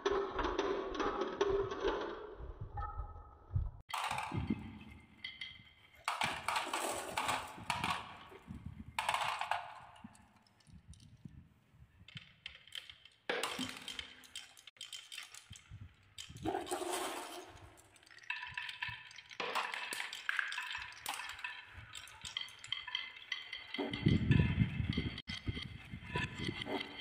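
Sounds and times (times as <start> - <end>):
marbles rolling on wooden track: 3.9 - 27.0
marbles clicking together: 12.0 - 24.3.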